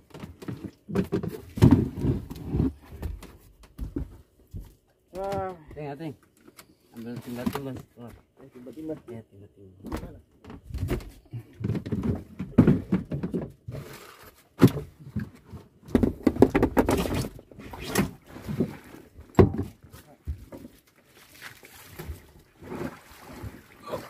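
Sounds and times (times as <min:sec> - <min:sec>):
heavy irregular knocks and thumps: 0:00.0 - 0:05.9, 0:09.8 - 0:13.7, 0:14.6 - 0:17.4, 0:18.5 - 0:20.6.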